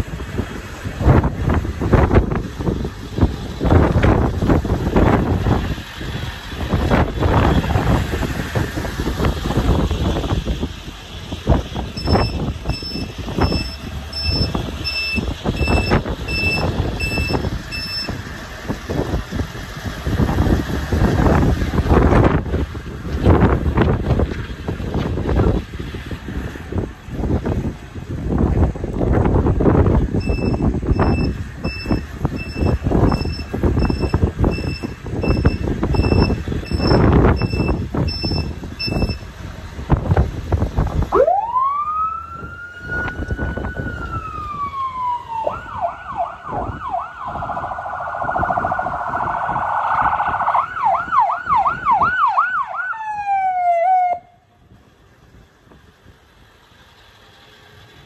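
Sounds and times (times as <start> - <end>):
wind on microphone: 0.0 - 53.4
ambulance siren: 11.2 - 18.2, 30.2 - 39.2, 41.1 - 54.4
repeated beep: 12.0 - 18.1, 30.2 - 39.2.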